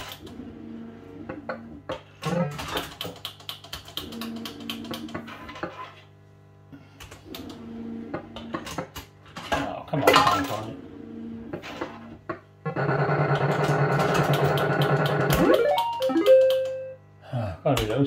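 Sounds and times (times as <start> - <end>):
electronic machine tones: 14.8 - 17.0.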